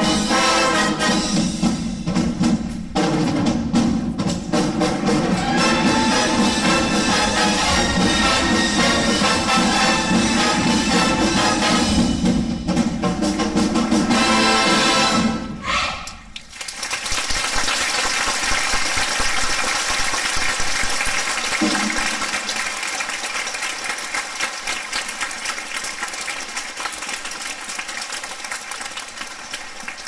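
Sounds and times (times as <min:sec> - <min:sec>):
audience clapping: 0:16.3 - 0:30.0.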